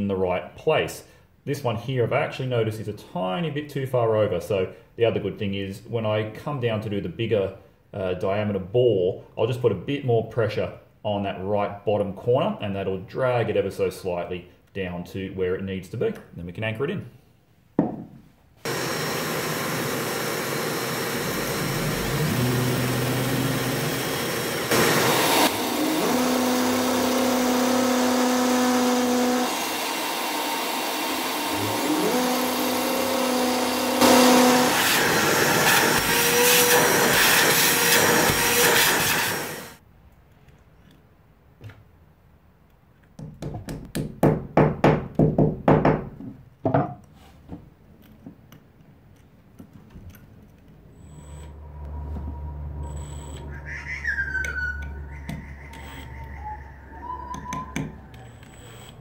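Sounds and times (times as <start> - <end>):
hammer drill boring into brick: 18.6 - 39.8, 58.1 - 59.0
shop vacuum running: 18.6 - 39.8, 50.9 - 53.7.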